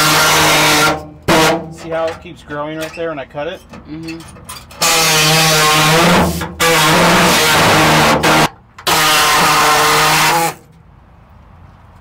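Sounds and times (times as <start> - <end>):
air saw cutting sheet steel: 0.0 - 1.6, 4.8 - 10.6.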